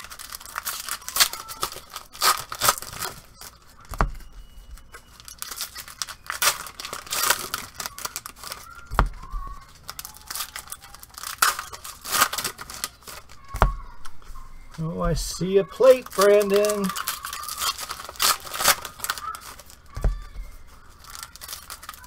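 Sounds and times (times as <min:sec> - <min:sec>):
foil packs ripping and crinkling: 0:00.0 - 0:04.0, 0:05.0 - 0:13.5, 0:14.8 - 0:22.0
dull thumps: 0:08.9 - 0:09.6, 0:13.4 - 0:14.0, 0:19.9 - 0:20.8.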